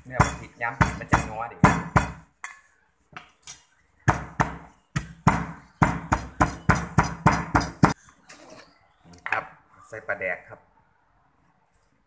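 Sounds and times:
pestle pounding in mortar: 0:00.1 - 0:02.3, 0:04.0 - 0:08.0.

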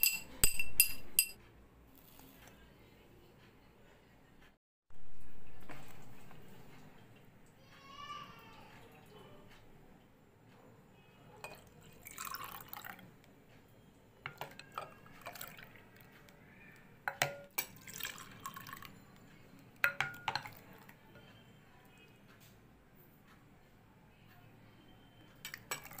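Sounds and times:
clinks against glass: 0:00.0 - 0:01.4, 0:17.1 - 0:17.8
liquid splashing into glasses: 0:11.4 - 0:13.1, 0:14.3 - 0:16.1, 0:17.1 - 0:18.9, 0:25.5 - 0:26.0.

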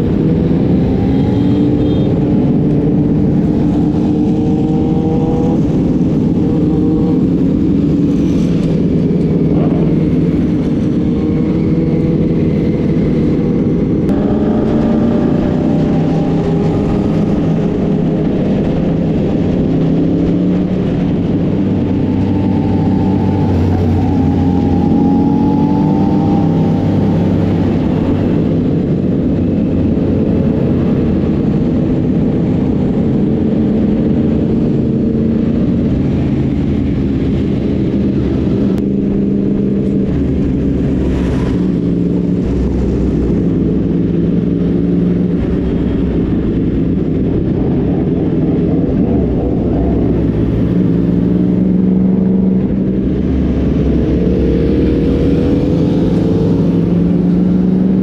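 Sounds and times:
motorcycle engines at low revs: 0:00.0 - 0:58.0.

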